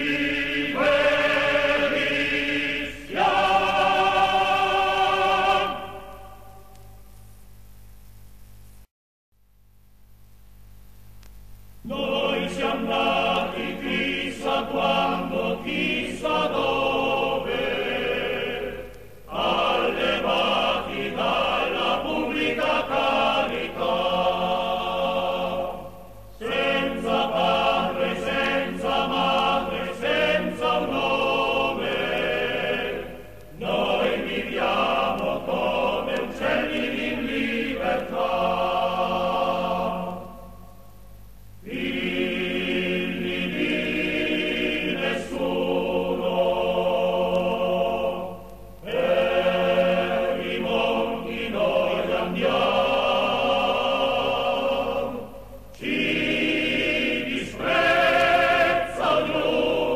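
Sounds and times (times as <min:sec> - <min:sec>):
choir singing: 0:00.0 - 0:07.0, 0:11.8 - 0:40.8, 0:41.6 - 0:59.9.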